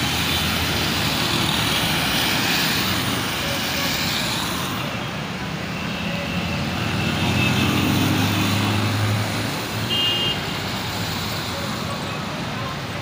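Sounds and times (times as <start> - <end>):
rain and wet tyres hissing: 0.0 - 4.8, 9.2 - 13.0.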